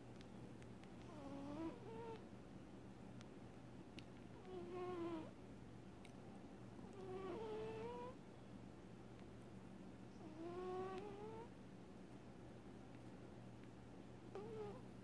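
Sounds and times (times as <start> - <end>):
faint steady hum: 0.0 - 15.0
cat snoring: 1.1 - 2.2, 7.0 - 8.1, 10.2 - 11.5, 14.4 - 14.8.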